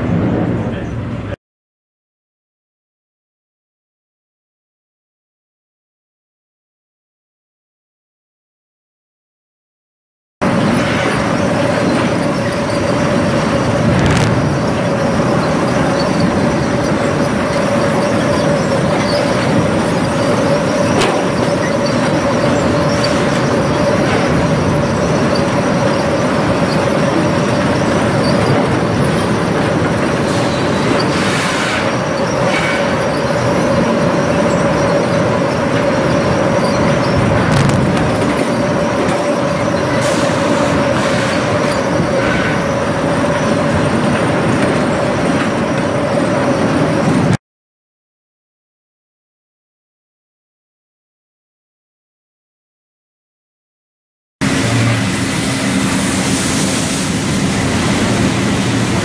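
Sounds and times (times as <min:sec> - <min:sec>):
sawmill machinery din: 0:10.4 - 0:47.4, 0:54.4 - 0:59.0.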